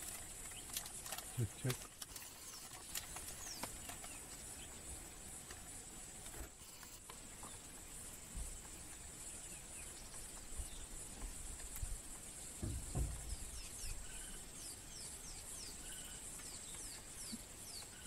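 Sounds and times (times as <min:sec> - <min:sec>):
insect chorus: 0:00.0 - 0:18.0
bird chirps: 0:12.6 - 0:18.0.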